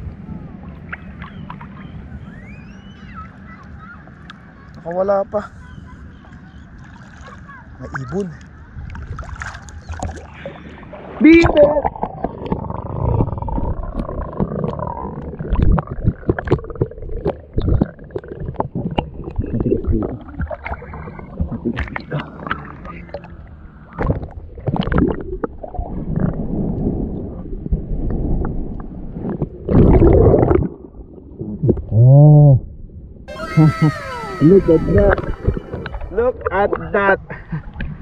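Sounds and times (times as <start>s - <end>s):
underwater gurgling and rumbling: 8.7s - 36.9s.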